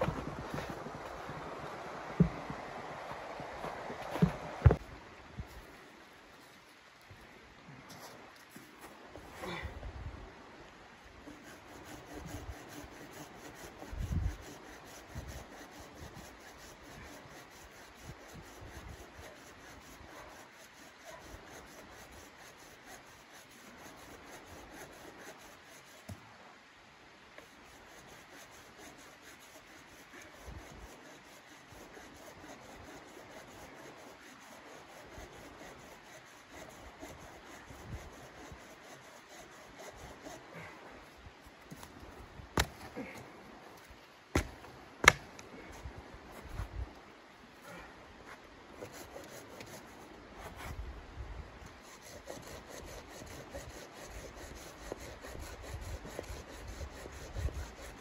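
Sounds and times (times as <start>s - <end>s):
hand saw rasping through log: 11.3s - 26.2s, 27.6s - 40.7s, 44.4s - 45.2s, 48.8s - 50.0s, 51.8s - 58.0s.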